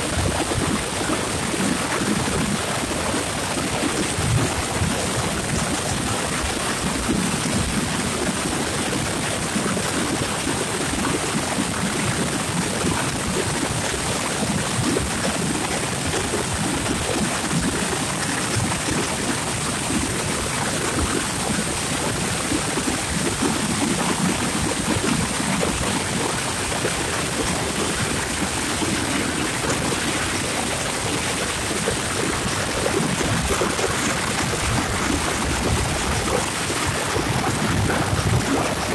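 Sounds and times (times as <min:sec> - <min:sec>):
rushing wind: 0:14.2 - 0:38.9
wind buffeting microphone: 0:22.3 - 0:38.9.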